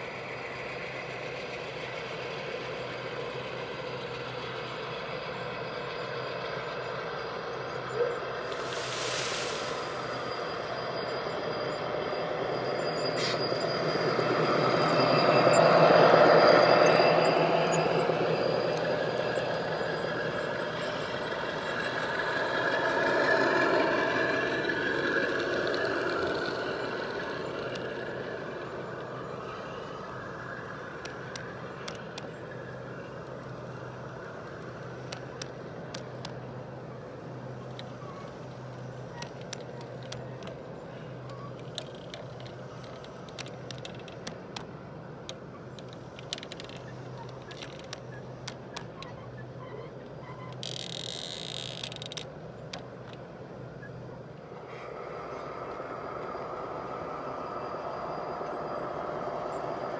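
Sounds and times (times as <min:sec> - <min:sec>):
model locomotive running: 0:00.0 - 0:59.9
wheels clicking over rail joints: 0:15.0 - 0:54.7.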